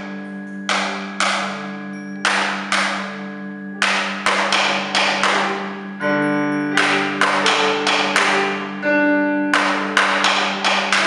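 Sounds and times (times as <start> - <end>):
sustained chord-like tone: 0.0 - 11.0.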